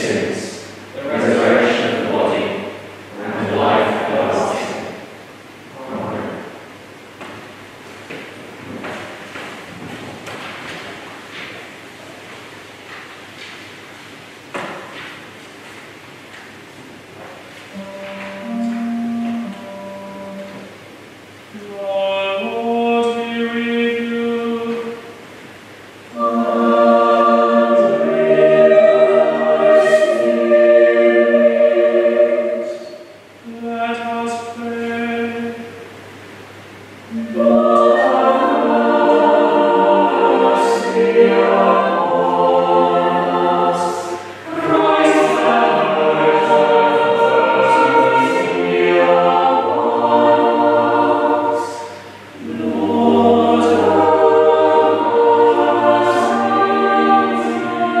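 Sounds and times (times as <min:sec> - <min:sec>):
choir singing unaccompanied: 0:00.0 - 0:05.2, 0:17.7 - 0:20.8, 0:21.5 - 0:25.2, 0:26.0 - 0:36.0, 0:37.1 - 0:58.0
chanted single-note line: 0:17.8 - 0:20.8.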